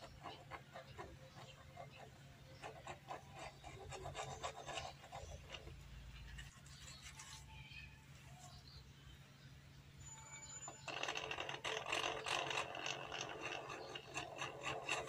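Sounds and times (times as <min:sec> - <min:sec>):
drill bit scraping plastic: 0:10.6 - 0:15.0.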